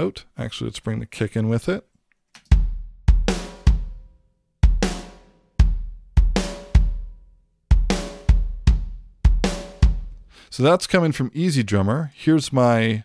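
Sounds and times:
kick drum: 2.5 - 7.1, 7.7 - 10.2.

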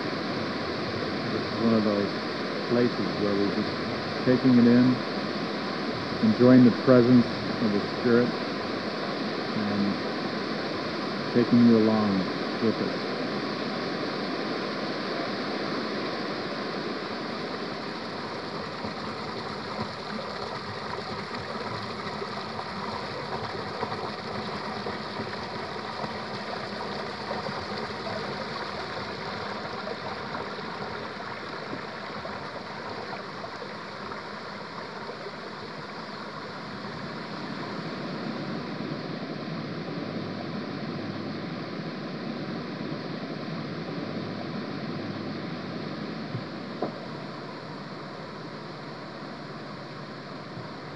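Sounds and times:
waterfall rushing: 17.4 - 38.0.

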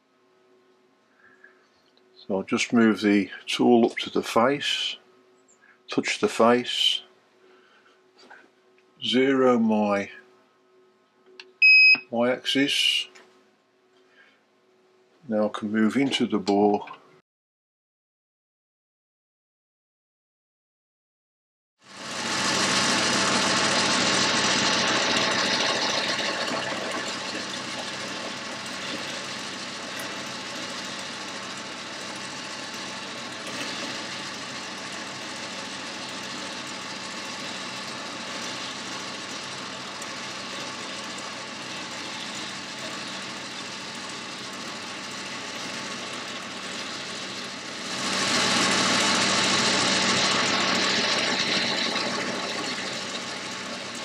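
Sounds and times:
lathe machine hum: 21.9 - 54.0.

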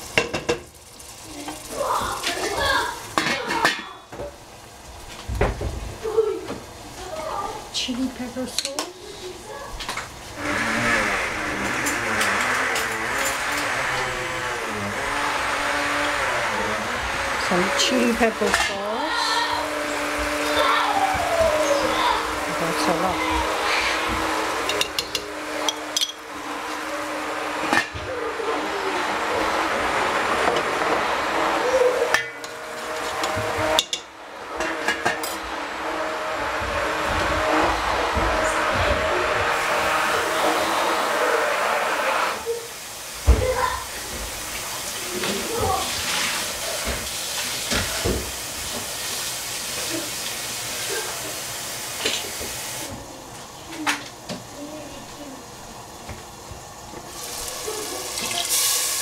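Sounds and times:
utensils knocking on a pan: 0.0 - 0.7, 24.0 - 26.2, 32.1 - 35.4
sauce sizzling in a pan: 0.0 - 36.4, 39.2 - 59.0
steady cooking hiss: 0.0 - 59.0
utensils clinking: 9.8 - 35.6.

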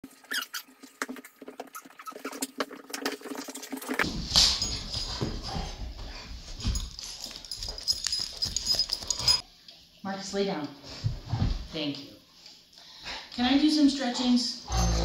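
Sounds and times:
dog paws clicking and scuffing: 4.0 - 9.4.

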